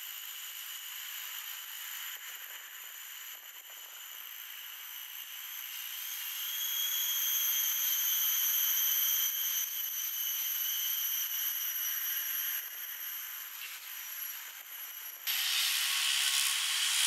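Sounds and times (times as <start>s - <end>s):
insects buzzing in trees: 4.1s - 17.0s.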